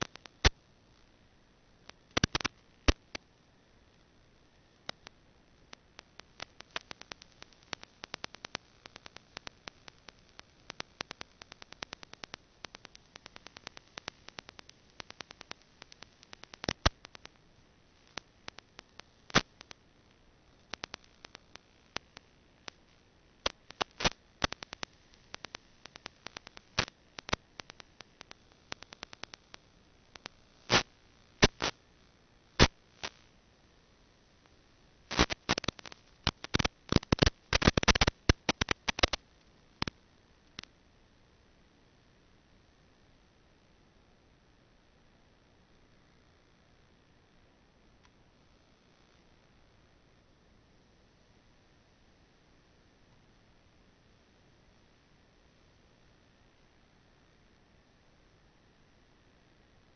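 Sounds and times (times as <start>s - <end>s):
sharp clicks and crackles: 0.0s - 0.6s, 1.8s - 3.3s, 4.8s - 17.4s, 18.0s - 19.9s, 20.5s - 31.8s, 32.6s - 33.3s, 34.4s - 40.8s
faint hiss: 0.0s - 59.9s
loud pops: 30.7s - 31.7s.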